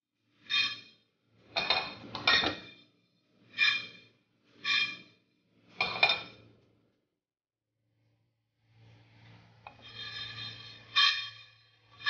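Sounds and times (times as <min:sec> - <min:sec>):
seeds scraping across frying pan: 0:08.9 - 0:12.0.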